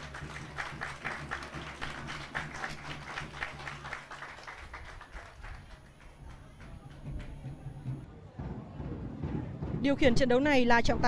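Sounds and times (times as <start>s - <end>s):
spectators clapping in rhythm: 0.0s - 8.1s.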